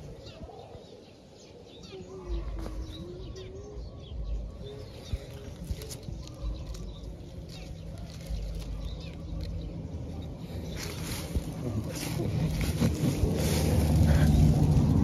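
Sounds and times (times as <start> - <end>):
leaves and twigs rustling: 4.5 - 15.0
small crackles: 5.2 - 9.8.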